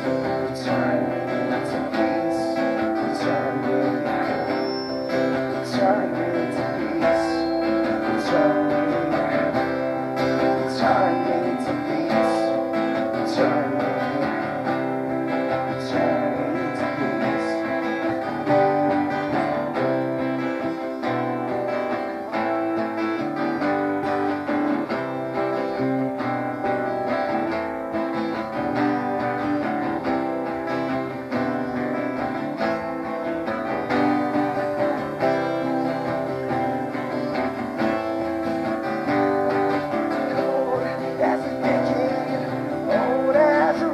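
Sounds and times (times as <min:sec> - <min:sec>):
two acoustic guitars playing: 0:00.0 - 0:43.9.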